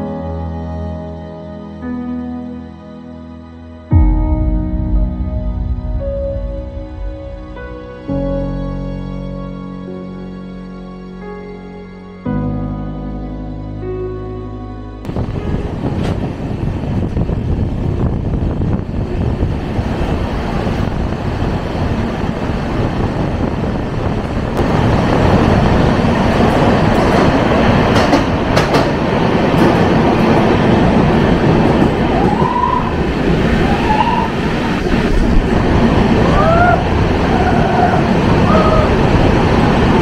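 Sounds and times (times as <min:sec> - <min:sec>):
train wheels rumbling and rattling: 0:15.1 - 0:40.0
train wheel squeals: 0:33.6 - 0:34.5.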